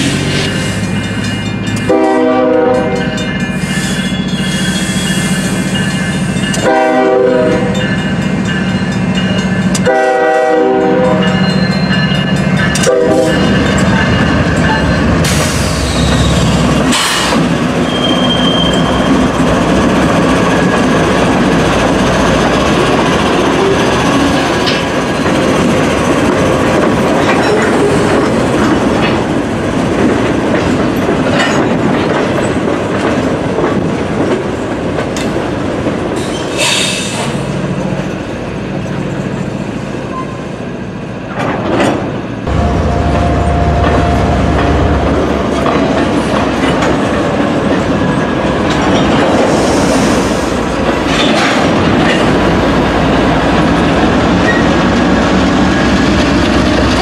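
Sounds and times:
diesel locomotive passing: 0.0s - 57.0s
high wheel squeals: 3.5s - 5.9s, 15.3s - 16.6s, 17.8s - 19.3s
train wheels clacking over rail joints: 18.7s - 38.1s, 43.6s - 57.0s.

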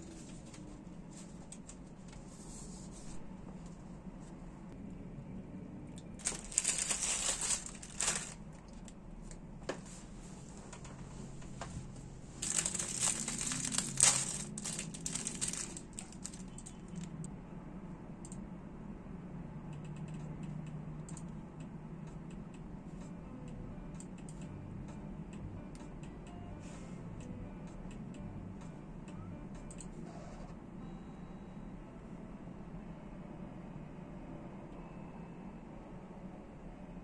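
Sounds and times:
wrapper crinkling and rustling: 6.2s - 8.9s, 12.4s - 17.1s.

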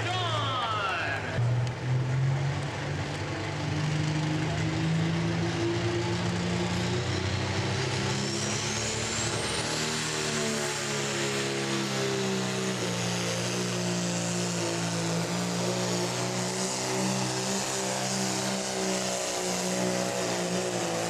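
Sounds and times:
diesel tractor engine at full load: 0.0s - 21.0s.

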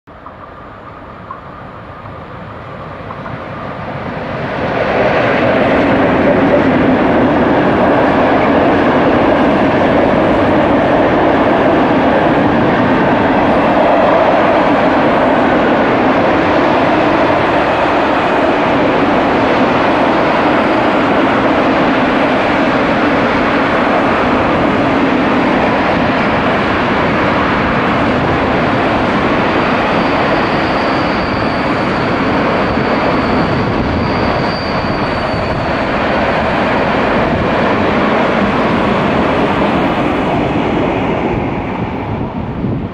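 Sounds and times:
freight train rolling past: 0.1s - 42.9s
thin high squeal: 29.9s - 35.8s.

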